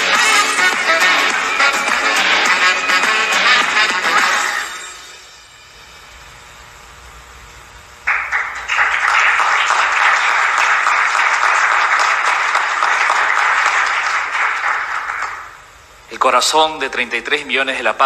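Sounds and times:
audience applauding: 0:00.0 - 0:04.5, 0:08.0 - 0:15.6.

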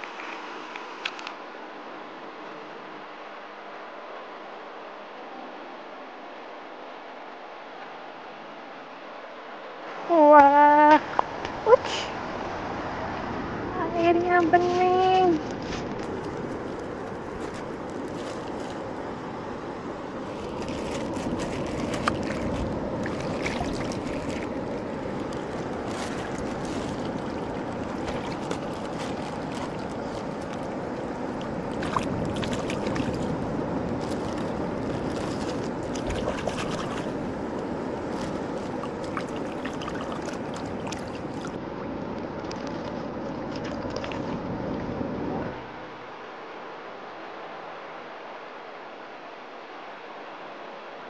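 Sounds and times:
seawater washing among rocks: 0:14.5 - 0:41.6
plastic bag crinkling: 0:16.0 - 0:18.8, 0:20.3 - 0:30.8, 0:34.0 - 0:37.2
small water splashes: 0:20.2 - 0:41.6, 0:43.3 - 0:44.4.

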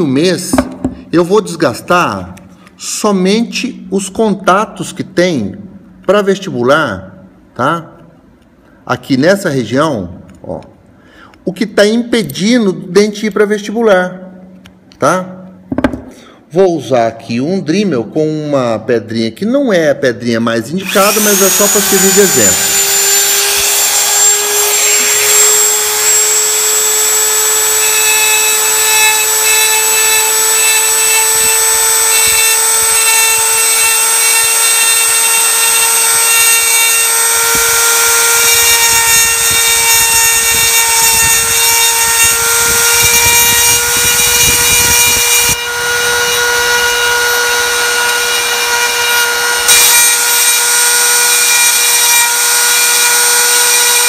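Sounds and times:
rotary tool grinding whine: 0:20.8 - 0:54.0.

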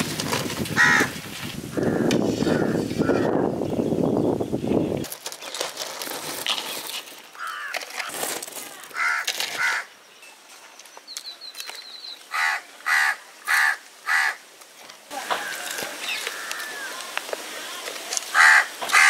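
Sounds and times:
crow cawing: 0:00.8 - 0:01.1, 0:01.7 - 0:03.3, 0:07.4 - 0:07.8, 0:08.9 - 0:09.9, 0:12.3 - 0:14.4, 0:15.2 - 0:17.0, 0:18.3 - 0:19.0.

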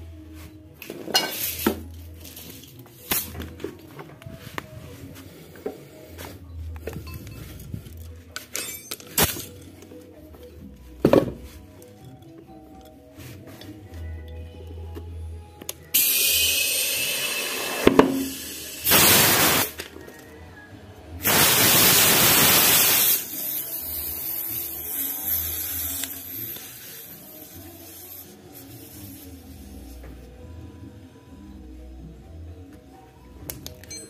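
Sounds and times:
compressed air hissing: 0:15.9 - 0:19.8, 0:21.2 - 0:30.0.

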